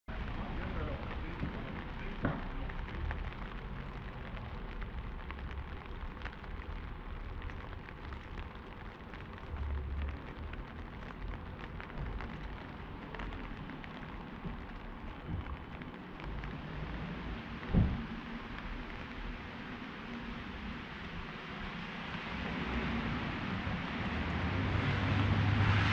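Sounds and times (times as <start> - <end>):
light rain on wet pavement: 0.1 - 25.9.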